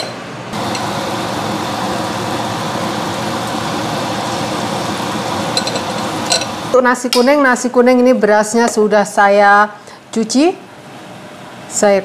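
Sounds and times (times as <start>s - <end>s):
food sizzling in hot oil: 0.6s - 6.8s.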